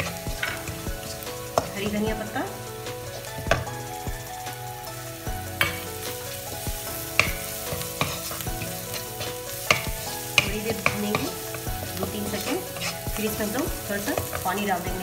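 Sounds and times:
onions sizzling in butter: 0.0 - 15.0
wooden spatula knocking on pan: 3.3 - 3.8, 6.5 - 8.6, 9.2 - 11.7.

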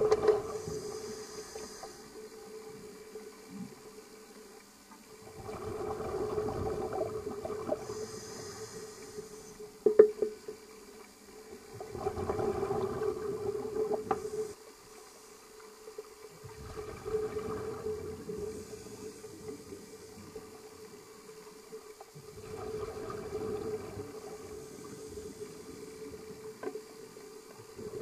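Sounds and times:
exhaled bubbles underwater: 0.0 - 1.8, 5.1 - 9.5, 11.5 - 14.6, 16.4 - 21.0, 22.2 - 28.0.

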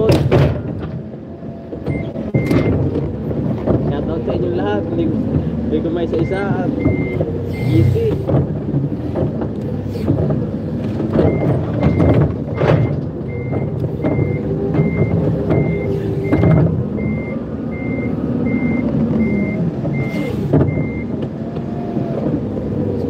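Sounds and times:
forklift engine running: 0.0 - 23.0
forklift reversing alarm beeping: 1.8 - 2.8, 6.1 - 8.1, 11.2 - 21.2.

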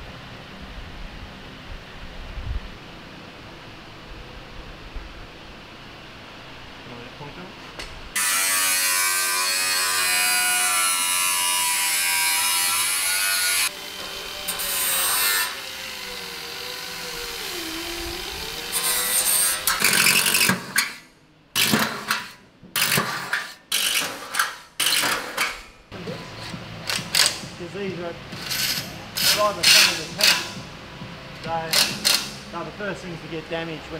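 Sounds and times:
angle grinder cutting steel: 8.2 - 21.0, 21.6 - 27.4, 28.4 - 30.6.

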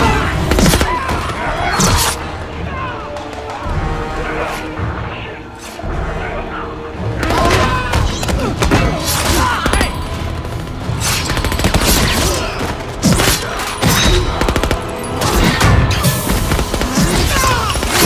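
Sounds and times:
background music: 0.0 - 18.0
rapid rifle gunfire: 9.6 - 13.3, 14.3 - 15.2, 16.1 - 18.0.

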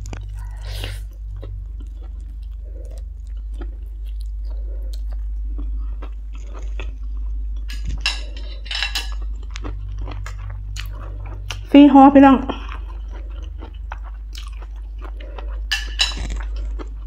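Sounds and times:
person chewing noodles: 0.0 - 11.7, 12.5 - 17.0
steady low hum: 0.0 - 17.0.

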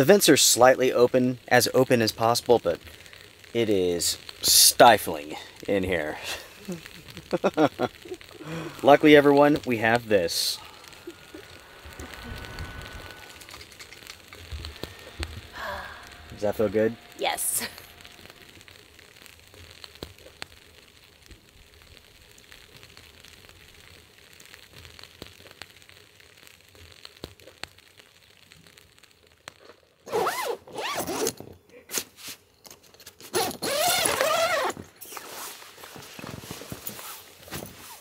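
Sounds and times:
faint steady hiss: 0.0 - 38.0
tent zipper being pulled: 30.0 - 32.0, 33.2 - 38.0.

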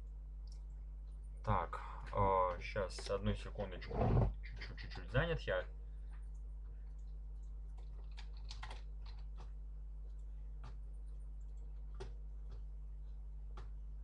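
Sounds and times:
low electrical hum: 0.0 - 14.0
computer keyboard keystrokes: 7.0 - 9.5.

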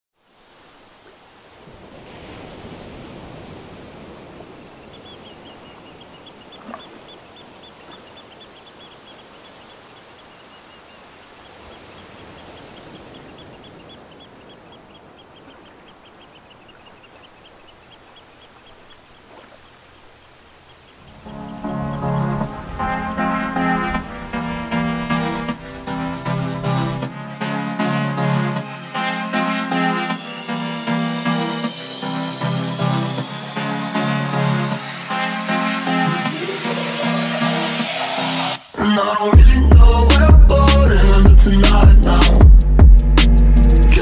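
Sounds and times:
noisy outdoor background: 0.1 - 44.0.

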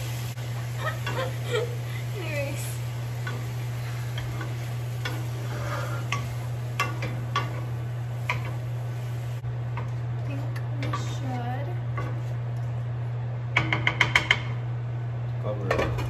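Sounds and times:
spatula stirring in frying pan: 0.0 - 9.4
light sizzle of sauteing: 0.0 - 15.4
steady low hum: 0.0 - 16.0
wooden spatula knocking on pan: 13.6 - 14.5.

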